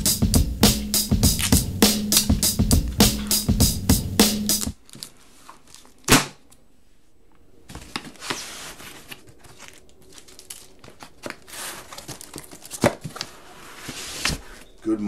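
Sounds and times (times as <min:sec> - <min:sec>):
cardboard rustling and scraping: 0:07.6 - 0:14.8.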